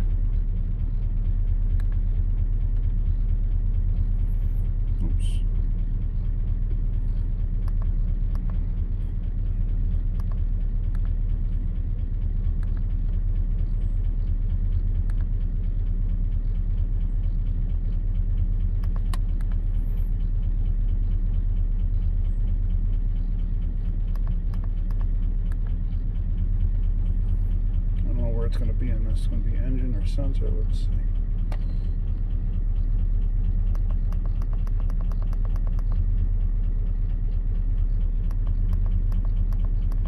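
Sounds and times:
engine running with rapid tapping: 0.0s - 40.0s
light clicks: 33.7s - 36.0s.

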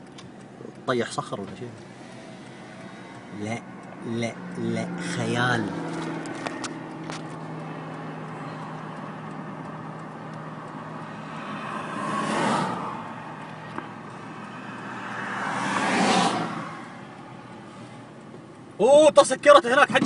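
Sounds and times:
road and engine noise in car: 0.0s - 20.0s
rushing swells: 7.8s - 18.2s.

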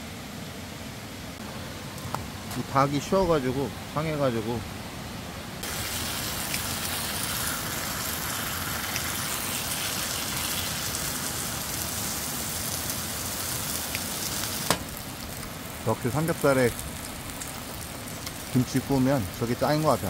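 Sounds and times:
food sizzling in a frying pan: 5.6s - 20.0s.

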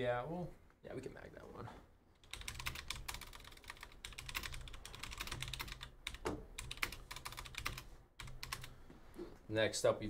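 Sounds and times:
computer keyboard typing: 2.2s - 8.7s.

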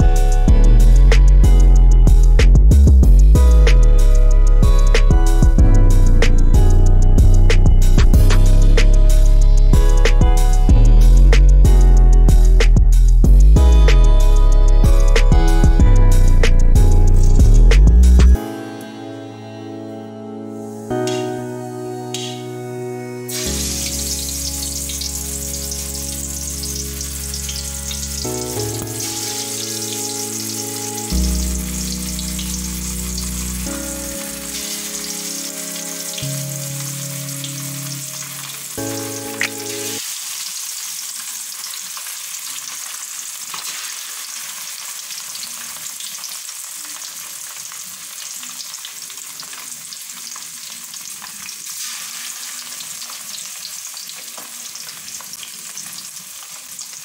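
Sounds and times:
soft instrumental music: 0.0s - 40.1s
fish sizzling in hot oil: 23.3s - 57.0s.

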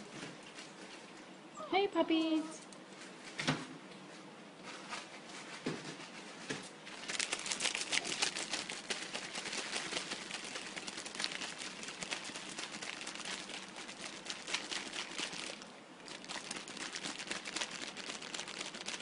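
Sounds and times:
puppy claws scratching on towel: 4.6s - 19.0s.

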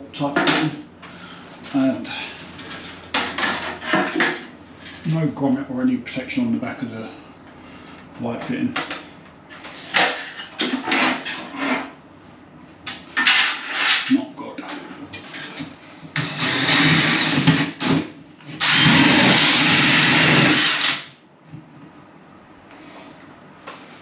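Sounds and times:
cordless drill boring: 16.2s - 17.9s, 18.6s - 21.1s.

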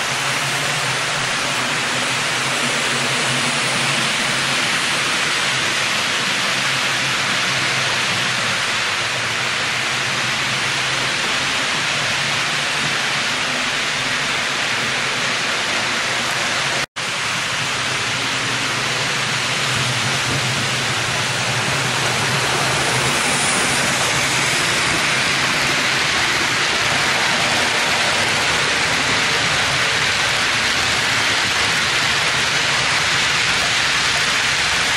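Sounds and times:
model train wheels rushing on rails: 0.0s - 34.9s.

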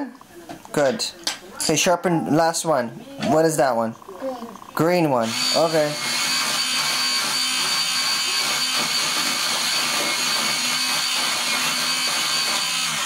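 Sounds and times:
electric pencil sharpener shaving pencil: 5.0s - 13.0s.

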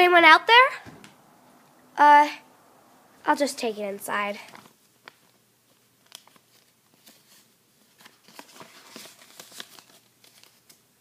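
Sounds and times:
paper rustling and crinkling: 4.4s - 10.9s.

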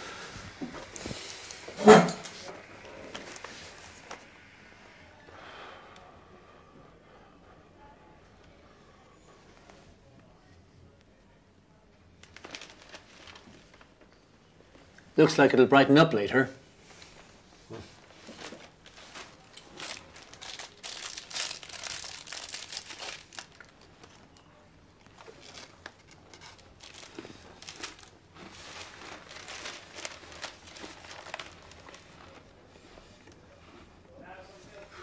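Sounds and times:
food wrapper crinkling: 12.2s - 14.2s, 18.1s - 32.5s
newspaper rustling: 12.2s - 14.2s, 17.0s - 33.3s.

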